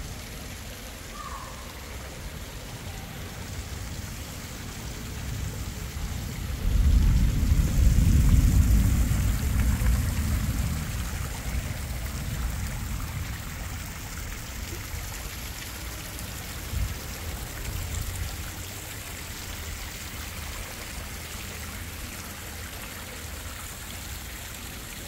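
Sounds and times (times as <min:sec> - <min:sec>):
fountain water splashing: 0:00.0 - 0:25.0
low rumble: 0:06.1 - 0:13.3.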